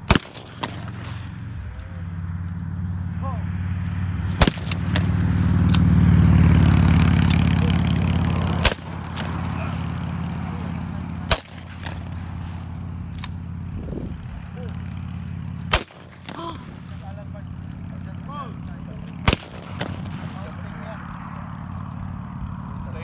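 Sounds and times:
shotguns firing: 0.0 - 2.0, 4.3 - 13.7, 14.4 - 18.0, 19.0 - 20.8
steady low hum: 0.0 - 23.0.

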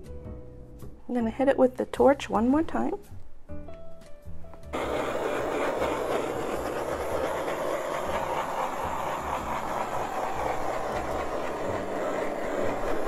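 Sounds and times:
butane torch flame hissing: 4.7 - 13.0.

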